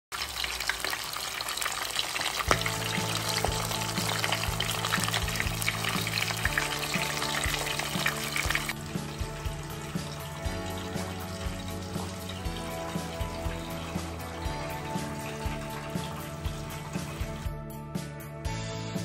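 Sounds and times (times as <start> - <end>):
fish sizzling in hot oil: 0.1 - 17.5
soft background music: 2.4 - 19.0.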